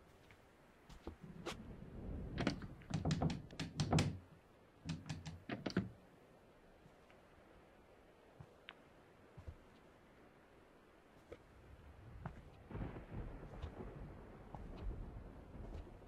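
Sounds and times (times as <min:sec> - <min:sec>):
sharp clicks and knocks: 0:02.4 - 0:04.2, 0:04.8 - 0:06.0.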